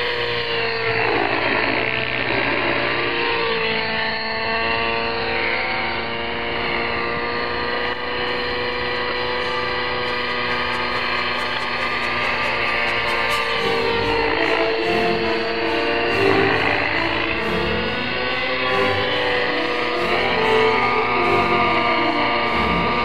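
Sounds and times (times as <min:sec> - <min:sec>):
model helicopter humming whine: 0:00.0 - 0:23.0.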